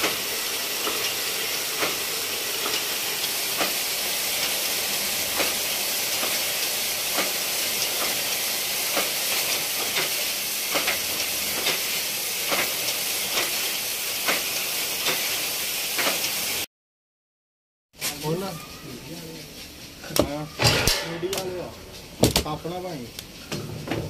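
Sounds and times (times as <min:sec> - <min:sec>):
knitting machines hissing: 0:00.0 - 0:16.6.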